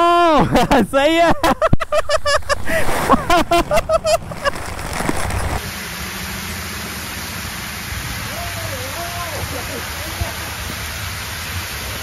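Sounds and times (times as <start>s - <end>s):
falling water hissing: 2.2s - 12.0s.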